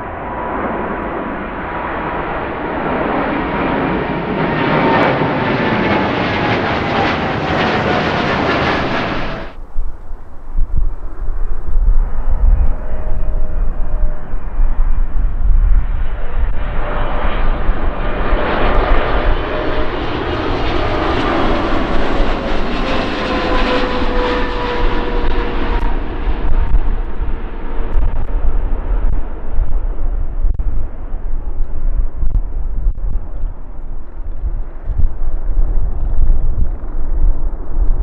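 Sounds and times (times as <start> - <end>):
jet engines passing close: 0.0 - 38.0
wind rumble on microphone: 0.0 - 38.0.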